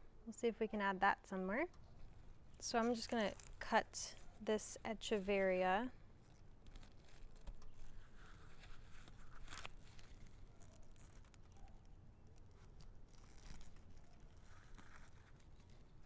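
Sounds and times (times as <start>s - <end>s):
rustling leaves and soil: 1.9s - 16.0s.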